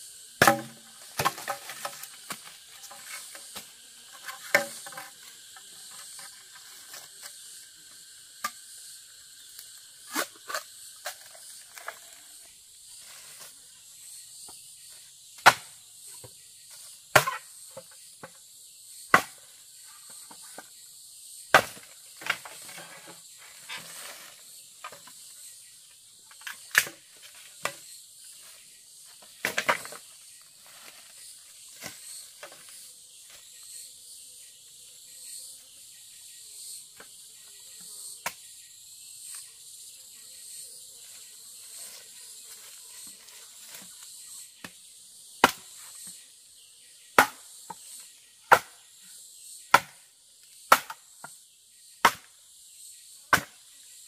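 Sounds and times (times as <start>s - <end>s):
insect chirring: 0.0s - 54.0s
machete chopping bamboo: 0.4s - 5.2s, 15.4s - 15.8s, 17.1s - 18.3s, 19.1s - 19.4s, 21.5s - 22.5s, 45.4s - 45.7s, 47.2s - 47.5s, 48.5s - 48.8s, 49.7s - 50.1s, 50.7s - 51.1s, 52.0s - 52.4s, 53.3s - 53.6s.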